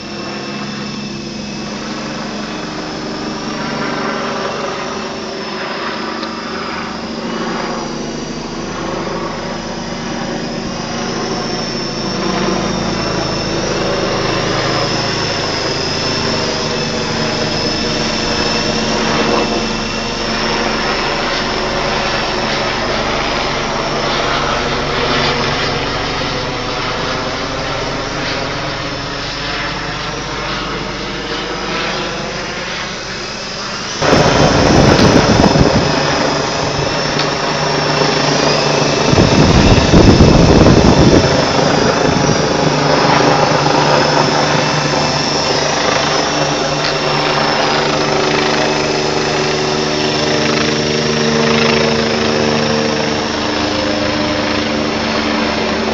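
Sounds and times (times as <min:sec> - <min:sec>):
toy helicopter rotors whining: 0:00.0 - 0:28.9, 0:30.7 - 0:55.9
low rumble: 0:34.0 - 0:42.5.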